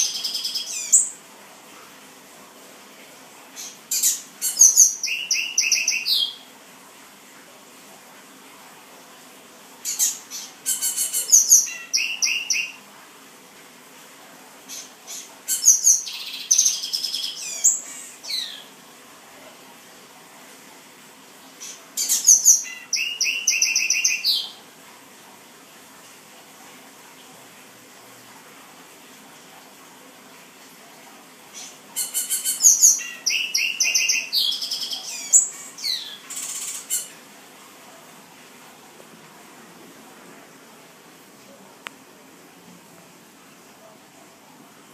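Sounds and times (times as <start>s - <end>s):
bird singing chirps: 4.5s - 6.4s, 11.1s - 12.8s, 22.1s - 24.6s, 32.5s - 36.8s.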